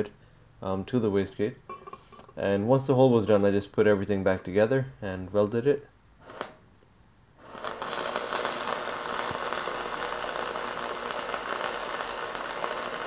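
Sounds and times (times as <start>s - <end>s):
welding arc crackling and hissing: 6.2s - 6.7s, 7.4s - 13.0s.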